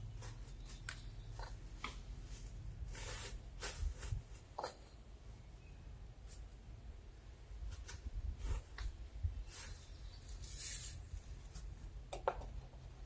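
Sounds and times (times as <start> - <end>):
plastic sheeting rustling: 2.2 - 4.5
bricks clicking and knocking: 12.1 - 13.0.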